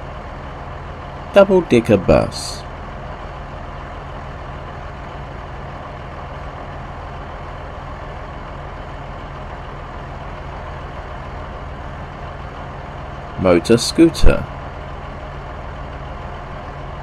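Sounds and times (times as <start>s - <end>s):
bus engine running: 0.0s - 17.0s.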